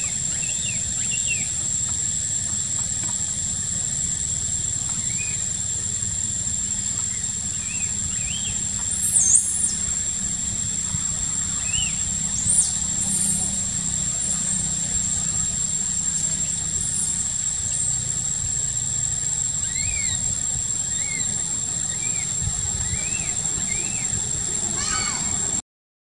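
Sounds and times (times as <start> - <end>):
steady high whine: 0.0 - 25.6
soft chirps: 4.7 - 24.6
baby monkey squealing: 19.6 - 20.3.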